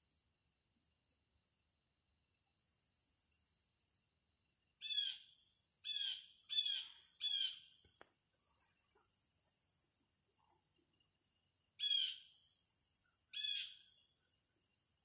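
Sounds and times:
bird harsh calls: 0:05.9 - 0:07.7, 0:11.8 - 0:12.3, 0:13.3 - 0:13.9.

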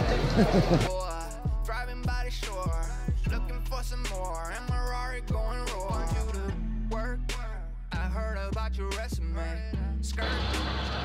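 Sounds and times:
kick drum beat: 0:00.0 - 0:03.5, 0:04.7 - 0:06.4.

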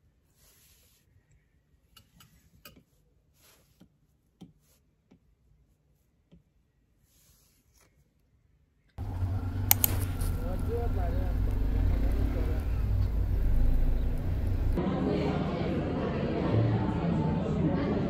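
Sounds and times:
vehicle and street noise: 0:09.0 - 0:14.8.

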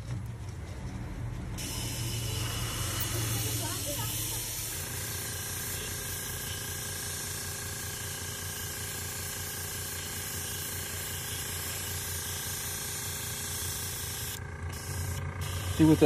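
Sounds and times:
airbrush hissing: 0:01.6 - 0:14.4.

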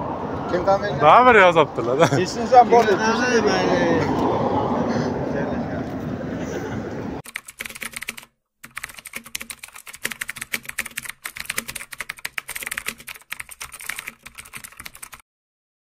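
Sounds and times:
fast keyboard typing clicks: 0:07.2 - 0:15.2.

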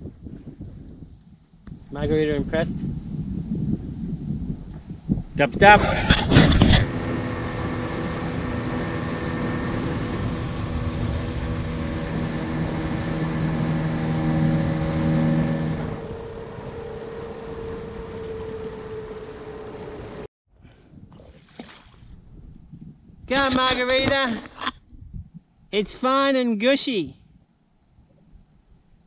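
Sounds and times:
outboard motor humming: 0:06.2 - 0:20.3.

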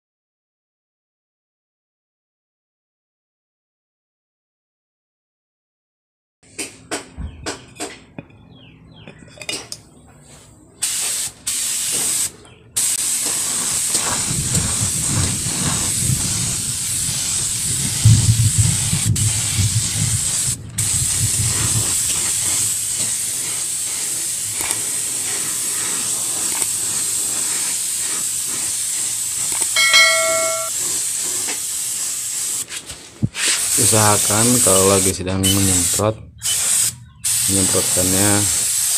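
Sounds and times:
paint sprayer hissing: 0:10.8 - 0:38.9
short chime: 0:29.8 - 0:30.7.

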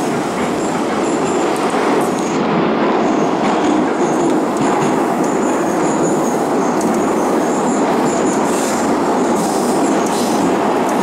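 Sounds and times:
train rumbling in tunnel: 0:00.0 - 0:11.0.

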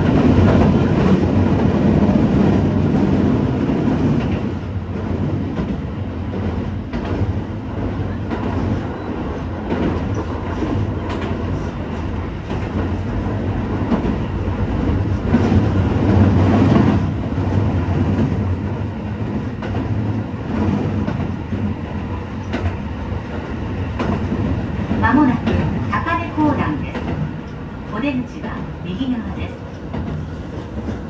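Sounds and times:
rail joint clicks: 0:00.0 - 0:31.0
train wheels rumbling on rail: 0:00.0 - 0:31.0.

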